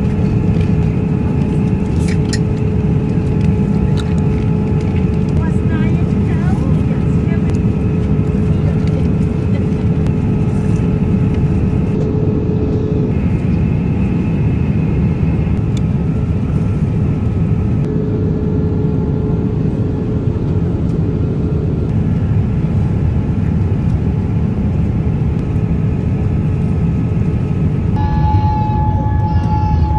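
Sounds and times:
airliner cabin rumble: 0:00.0 - 0:29.9
faint steady hum: 0:11.8 - 0:13.6, 0:17.8 - 0:21.9.

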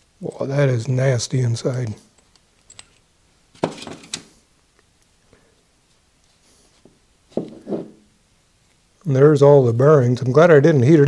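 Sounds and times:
metal parts clicking and clattering: 0:02.2 - 0:04.2.

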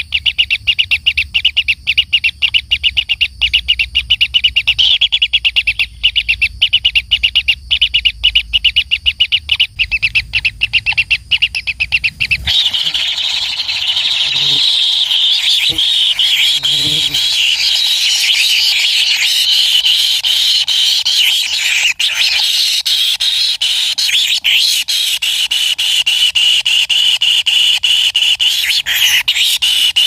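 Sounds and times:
bird nestlings buzzing chatter: 0:09.8 - 0:22.6.

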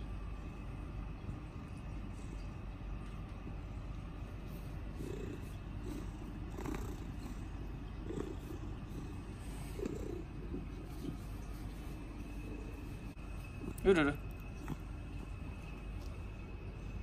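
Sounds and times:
cat purring loudly: 0:04.6 - 0:15.2.

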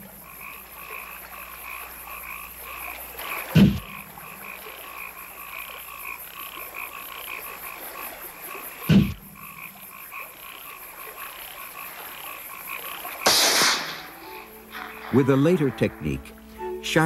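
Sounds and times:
frogs calling: 0:00.0 - 0:17.0
flash powder hiss: 0:13.2 - 0:15.2
flash powder bang: 0:13.3 - 0:14.1.

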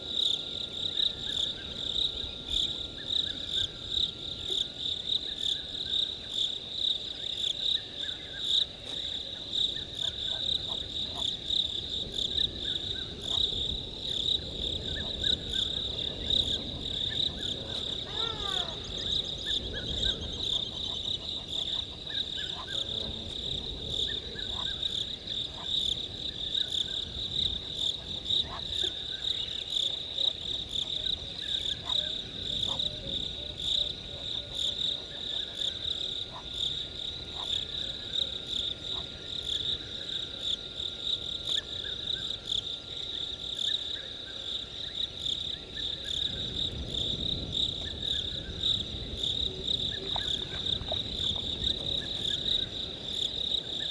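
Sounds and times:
crickets trilling: 0:00.0 - 0:53.9
faint animal calls: 0:16.5 - 0:23.3, 0:28.0 - 0:35.6.

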